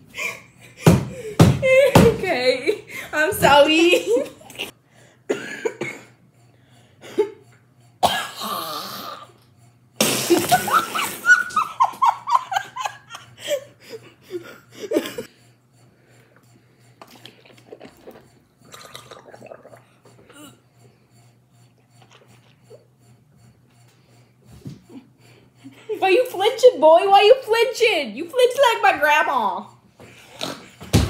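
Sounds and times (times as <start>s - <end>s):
children coughing and spluttering: 5.3s - 6.2s, 8.0s - 9.4s, 10.0s - 11.7s
children laughing: 10.5s - 15.3s.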